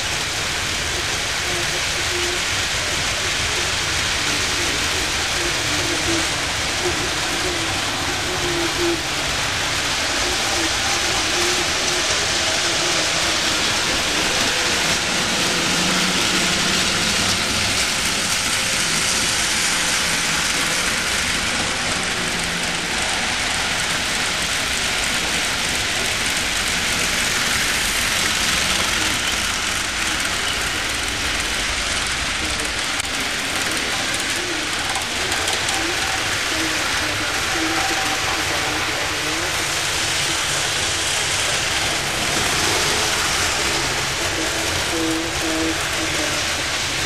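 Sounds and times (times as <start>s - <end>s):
model trains rumbling on track: 0.0s - 47.0s.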